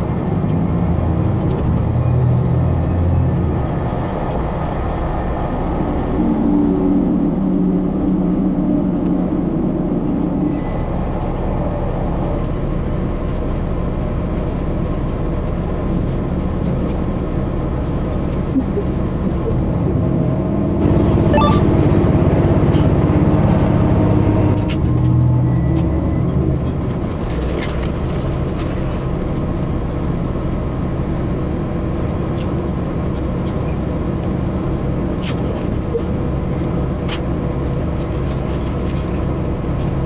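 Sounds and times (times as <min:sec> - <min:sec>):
train rumble and rail noise: 0:00.0 - 0:40.0.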